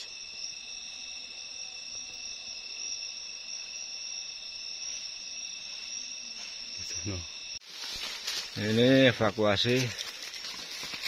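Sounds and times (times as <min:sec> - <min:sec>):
night insects chorus: 0:00.0 - 0:11.0.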